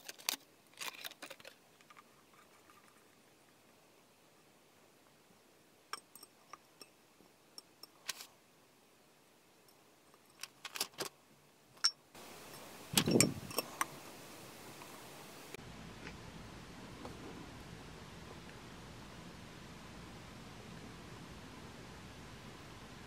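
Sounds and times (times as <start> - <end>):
glass and metal clinks: 6.0 - 7.0, 11.8 - 13.7.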